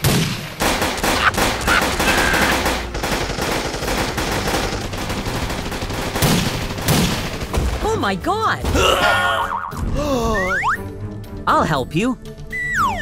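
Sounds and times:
rapid machine-gun fire: 0.0s - 8.0s.

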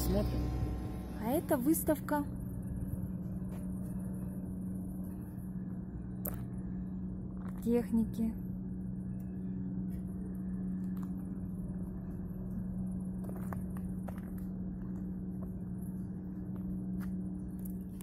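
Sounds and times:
low machine hum: 0.0s - 18.0s
faint footsteps clicking: 13.0s - 17.8s.

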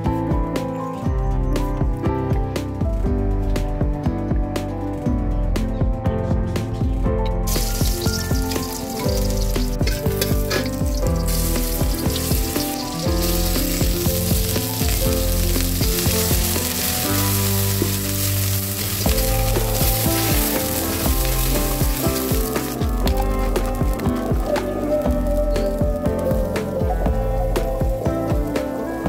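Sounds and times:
background music: 0.0s - 29.0s
onions sizzling in hot oil: 7.5s - 29.0s
metal spatula stirring in wok: 7.8s - 22.9s.

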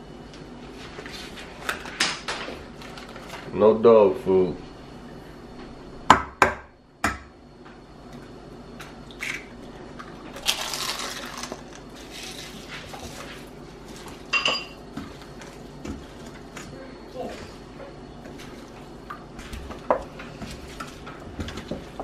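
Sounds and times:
hands mixing food in metal bowl: 10.0s - 22.0s.

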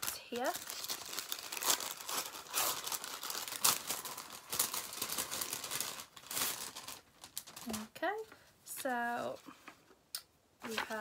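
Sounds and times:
paper bag crinkling: 0.0s - 7.9s.

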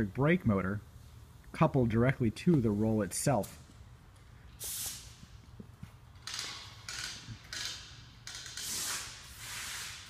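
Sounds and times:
footsteps on concrete floor: 5.2s - 6.1s.

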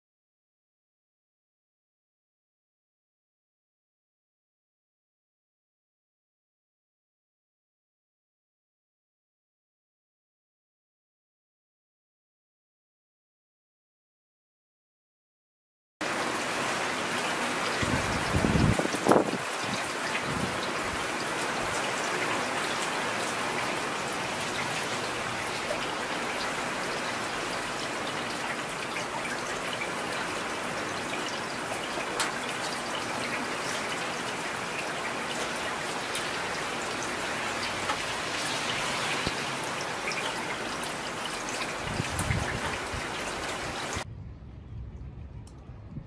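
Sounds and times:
heavy rain falling: 16.0s - 44.2s.

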